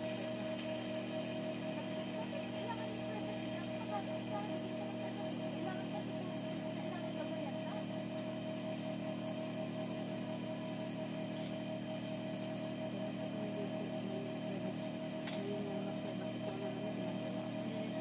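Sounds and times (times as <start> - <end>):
sewing machine motor humming: 0.0 - 18.0.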